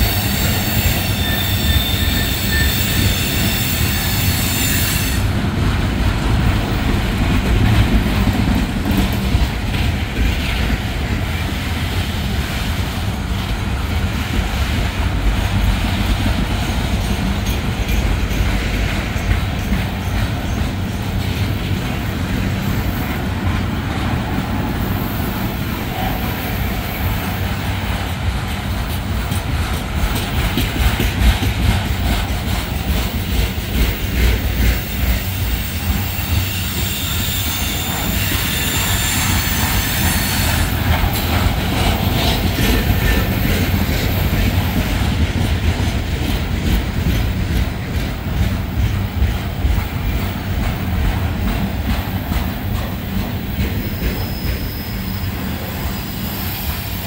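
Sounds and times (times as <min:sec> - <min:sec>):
freight train rumbling past: 0:00.0 - 0:57.0
steel wheels clattering on rails: 0:00.0 - 0:57.0.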